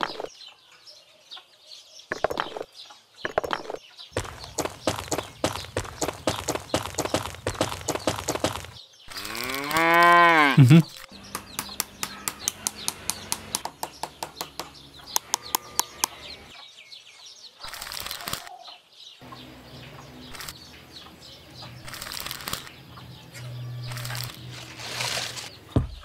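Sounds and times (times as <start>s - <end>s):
sharp wooden clicks: 3.3s - 10.1s, 10.9s - 16.2s, 17.7s - 18.5s, 21.8s - 22.7s
scraping and rustling in sand: 23.3s - 25.8s.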